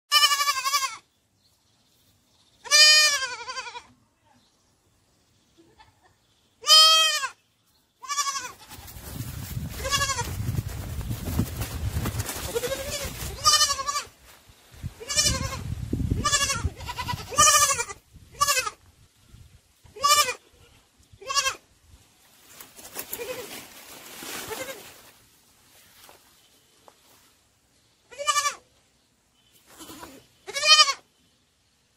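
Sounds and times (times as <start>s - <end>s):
sheep and lambs bleating: 0.1s - 1.1s, 2.6s - 4.0s, 6.6s - 7.4s, 8.0s - 9.0s, 9.8s - 10.4s, 12.5s - 14.2s, 15.0s - 18.8s, 19.9s - 21.6s, 28.1s - 28.7s, 29.7s - 31.1s.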